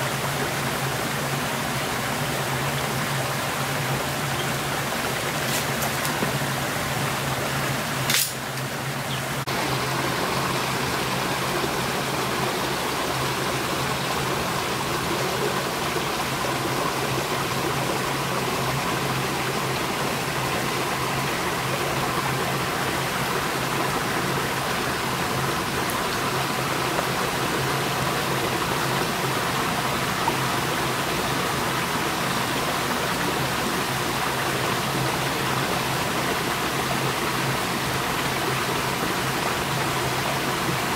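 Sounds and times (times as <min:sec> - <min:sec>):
river water rushing: 0:00.0 - 0:40.9
sharp click: 0:08.1 - 0:08.7.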